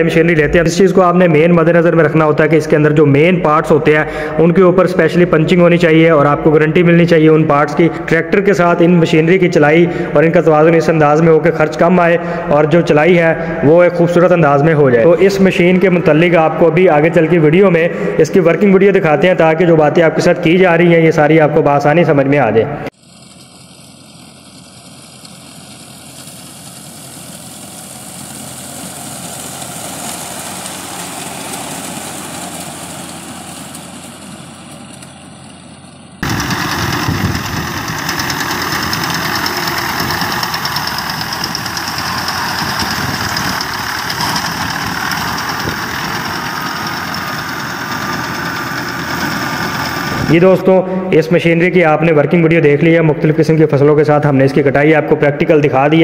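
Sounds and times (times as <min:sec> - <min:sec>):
tractor engine with reaper: 0:22.9 - 0:51.1.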